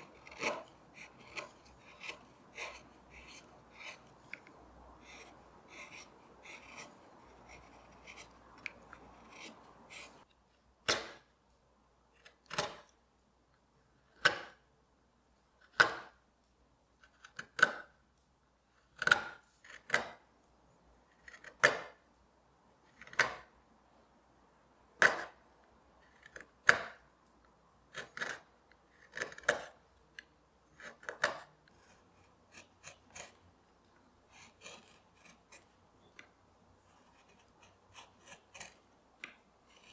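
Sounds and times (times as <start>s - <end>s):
chisel cutting strokes: 0.0s - 11.2s, 19.0s - 20.2s, 25.0s - 25.4s, 26.0s - 27.0s, 27.8s - 39.9s
chisel scraping wood: 0.0s - 11.2s, 18.9s - 20.2s, 21.1s - 22.0s, 22.9s - 23.5s, 25.0s - 25.4s, 26.0s - 27.0s, 27.9s - 39.9s.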